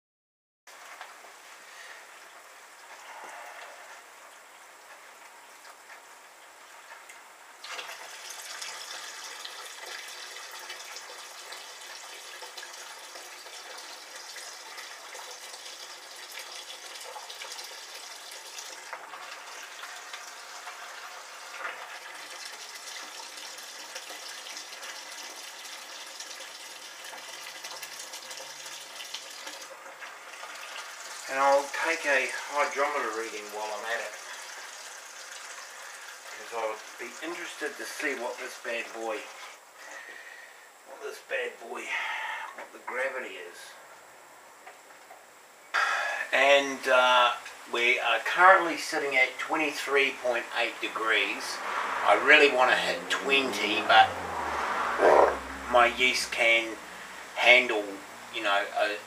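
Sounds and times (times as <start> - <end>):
liquid gushing into bucket: 7.6 - 40.5.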